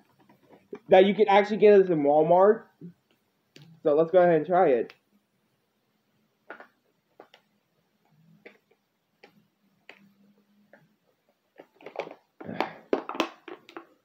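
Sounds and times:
person gulping and swallowing: 0:11.6 - 0:13.8.

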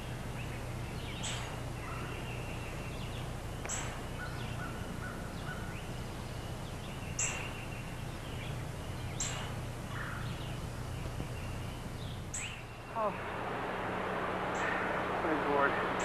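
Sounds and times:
birds chirping: 0:00.0 - 0:16.0
steady low hum: 0:00.0 - 0:16.0
thin whistled bird notes: 0:00.4 - 0:10.6.

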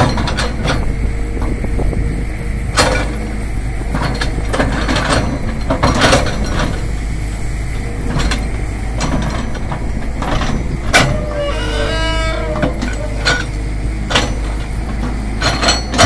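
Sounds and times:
excavator diesel engine running: 0:00.0 - 0:16.0.

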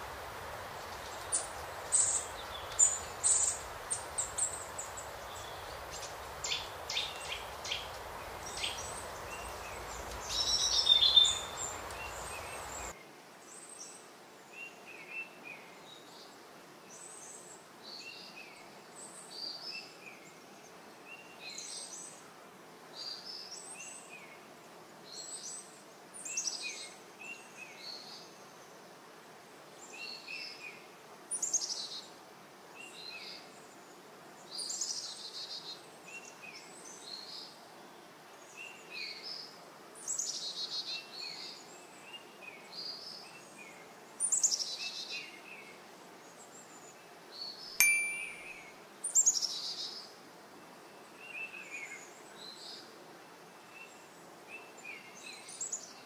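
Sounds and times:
songbirds singing: 0:00.0 - 0:13.0
faint outdoor background noise: 0:00.0 - 0:56.0
sharp click: 0:47.8 - 0:48.7.

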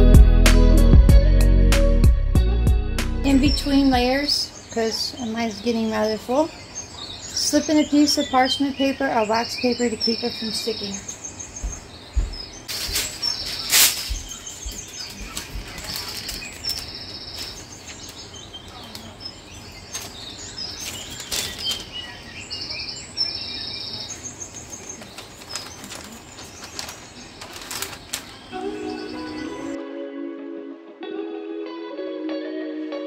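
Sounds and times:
small birds chirping: 0:03.3 - 0:29.8
paper rustling and crinkling: 0:12.7 - 0:22.2, 0:24.4 - 0:29.8.

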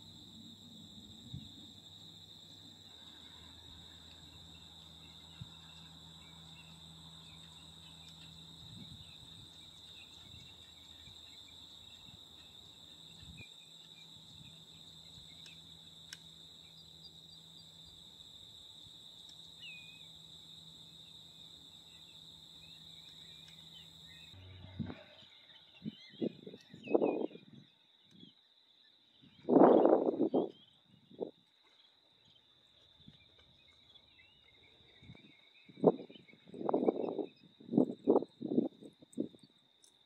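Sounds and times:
insects trilling: 0:00.0 - 0:40.0
low hum: 0:19.8 - 0:26.3.

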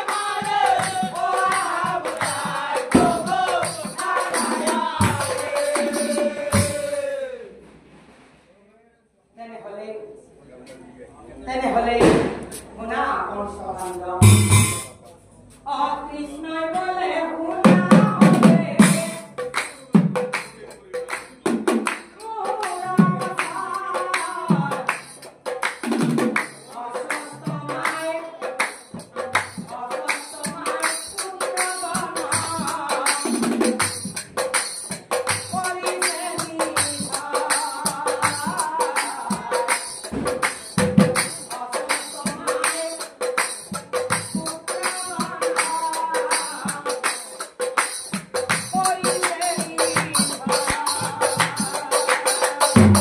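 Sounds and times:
men singing in a group: 0:00.0 - 0:07.7, 0:17.5 - 0:19.5, 0:22.2 - 0:25.2, 0:26.5 - 0:47.8, 0:48.5 - 0:53.0
heavy drum strokes: 0:00.0 - 0:08.6, 0:14.2 - 0:15.1, 0:28.8 - 0:53.0.

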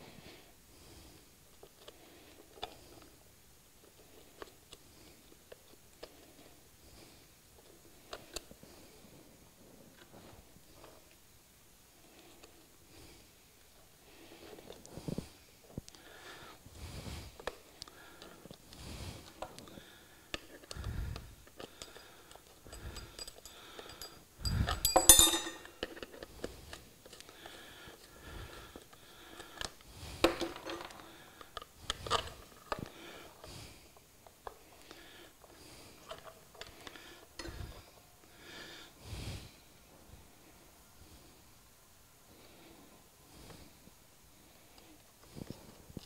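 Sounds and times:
sharp metallic clinks: 0:22.7 - 0:25.8.

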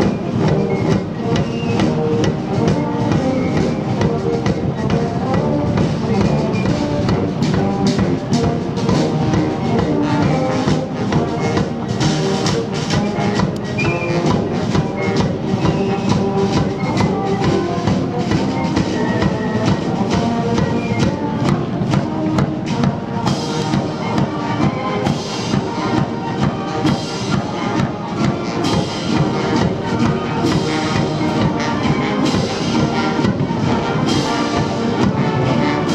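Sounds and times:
marching band playing a march: 0:00.0 - 0:35.9
steady drumbeat: 0:00.0 - 0:35.9.

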